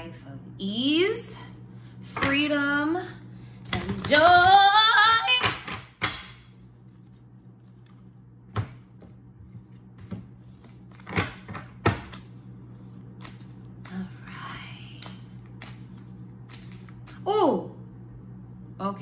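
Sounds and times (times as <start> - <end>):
cards shuffling and snapping: 10.0 - 17.2.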